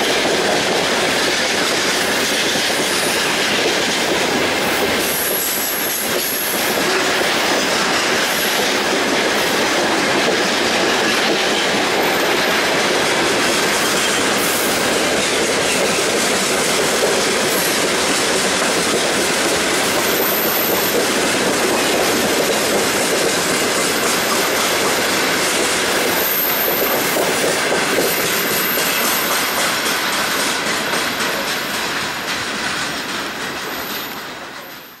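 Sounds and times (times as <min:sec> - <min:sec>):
freight train wheels rattling: 0:00.0 - 0:35.0.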